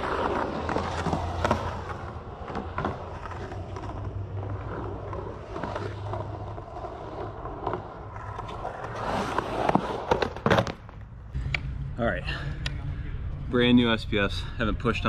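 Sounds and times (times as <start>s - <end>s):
skateboard wheels rolling on concrete: 0.0s - 11.7s.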